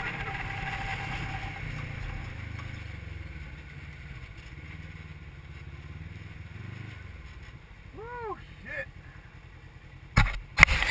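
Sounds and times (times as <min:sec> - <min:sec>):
off-road vehicle engine running: 0:00.0 - 0:10.9.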